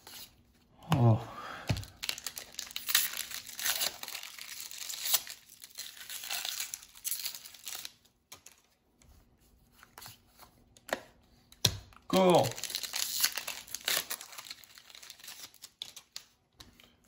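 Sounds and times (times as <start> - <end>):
foil wrapper crinkling and tearing: 1.8 - 8.6, 12.1 - 16.4.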